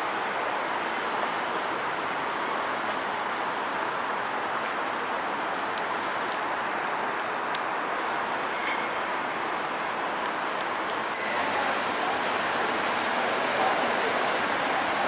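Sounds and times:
city street traffic: 0.0 - 15.0.

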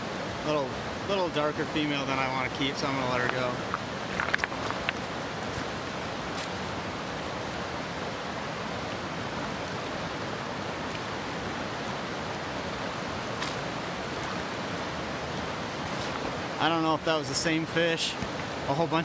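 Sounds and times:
river water rushing over gravel: 0.0 - 19.0.

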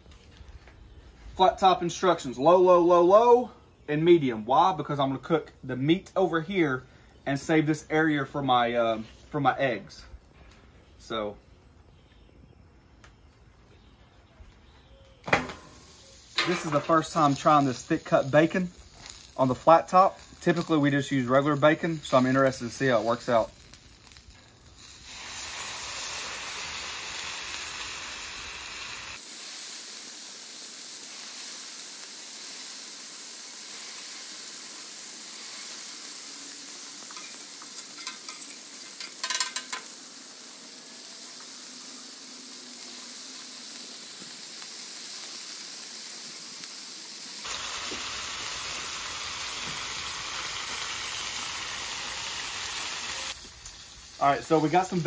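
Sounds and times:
bacon sizzling on griddle: 15.2 - 55.0.

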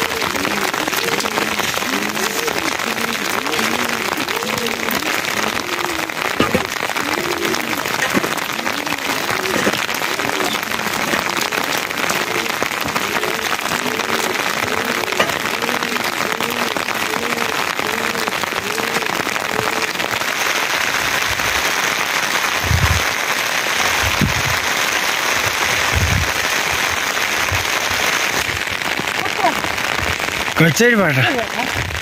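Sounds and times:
rising and falling call: 0.0 - 20.5
rain falling: 0.0 - 32.0.

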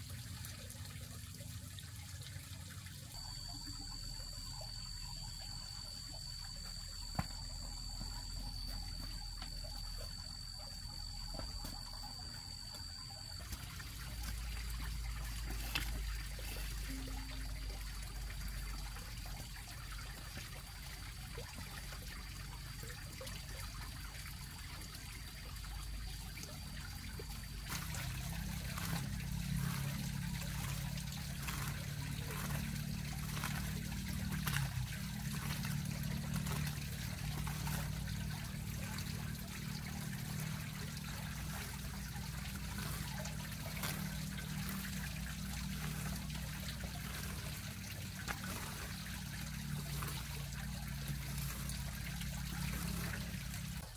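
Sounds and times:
water trickling: 0.0 - 53.9
faint regular strokes: 27.7 - 53.8.

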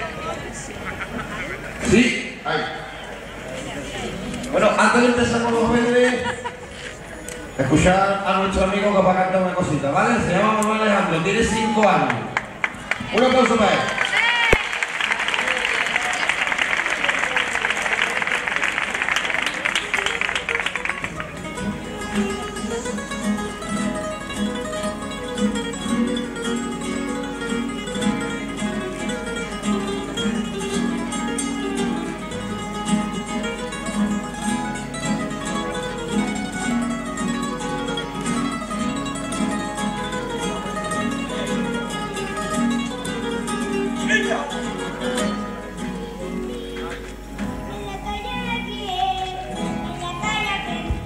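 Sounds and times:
guitars strumming: 19.4 - 51.0
boy singing: 45.9 - 51.0.

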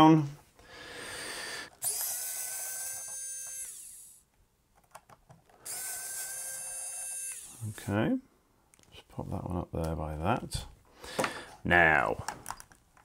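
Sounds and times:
electric screwdriver whirring: 1.8 - 4.2, 5.6 - 7.8.

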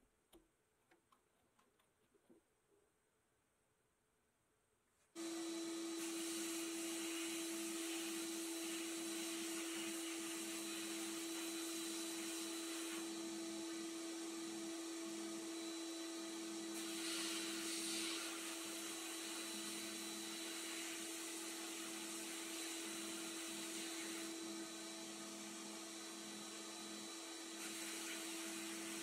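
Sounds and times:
paint spray gun hissing: 16.7 - 19.0.

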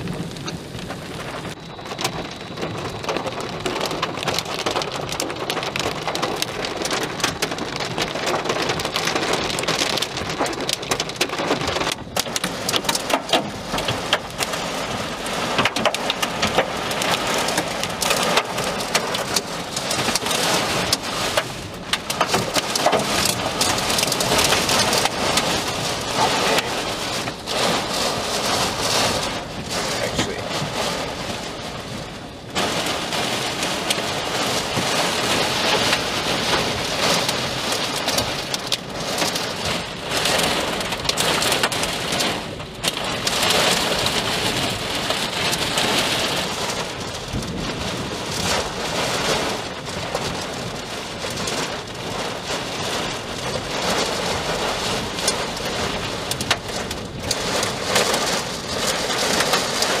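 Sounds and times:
heavy rain: 0.0 - 60.0
storm wind rushing: 11.9 - 52.2.

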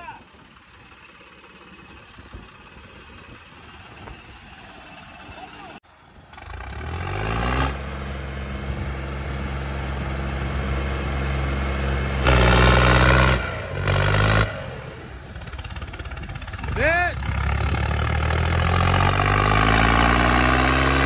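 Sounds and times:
tractor diesel engines under load: 0.0 - 21.0.

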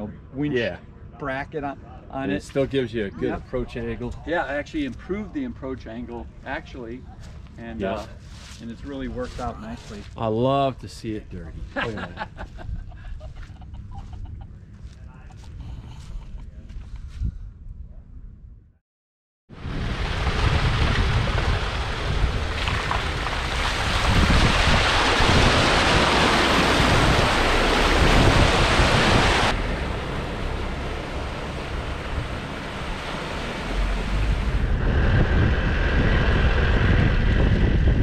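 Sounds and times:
vehicle low rumble: 0.0 - 18.8, 19.6 - 38.0
wind buffeting microphone: 15.5 - 18.3, 19.6 - 38.0.

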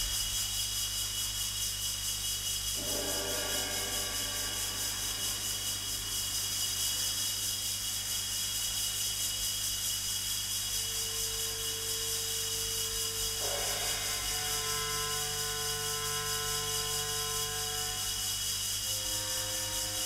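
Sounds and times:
low electrical hum: 0.0 - 20.0
recording hiss: 0.0 - 20.0
music: 13.4 - 20.0.

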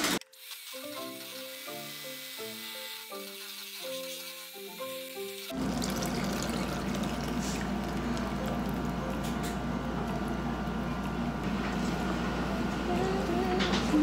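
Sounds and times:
plucked background music: 0.8 - 14.0
liquid pouring through strainer: 5.5 - 9.0.

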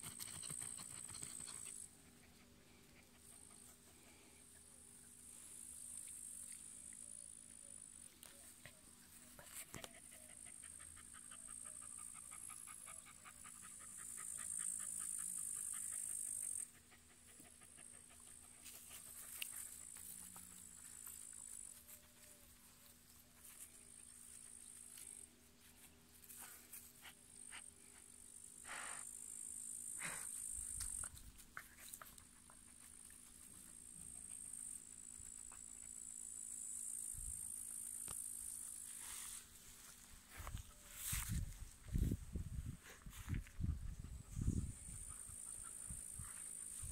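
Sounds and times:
dog panting: 0.0 - 4.1, 9.6 - 20.5
insects trilling: 9.5 - 25.3, 27.4 - 41.3
insects chirring: 27.4 - 32.2, 32.9 - 42.2
rustling in dry grass: 38.6 - 43.6.

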